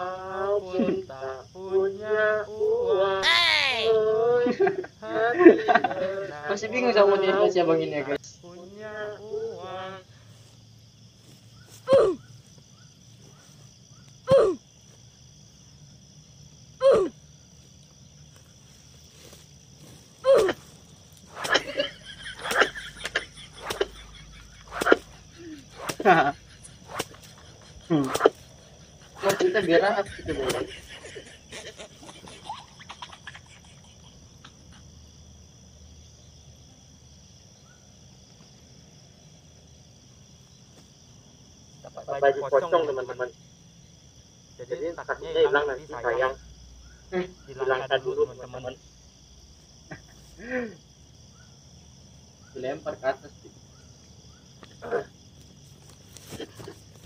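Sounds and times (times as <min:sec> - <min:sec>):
high-pitched insect chirring: 0:01.2 - 0:04.2, 0:06.5 - 0:36.4.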